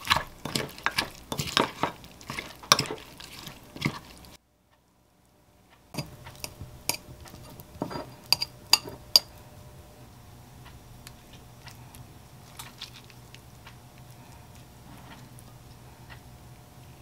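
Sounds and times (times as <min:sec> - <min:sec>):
metal spoon scraping ceramic bowl: 0:00.0 - 0:04.1, 0:06.0 - 0:09.4
steady low hum: 0:00.0 - 0:17.0.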